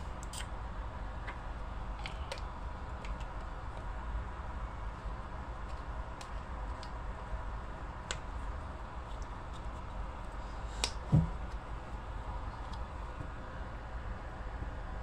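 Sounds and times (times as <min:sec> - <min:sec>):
steady low background hum: 0:00.0 - 0:15.0
low thump: 0:11.1 - 0:11.4.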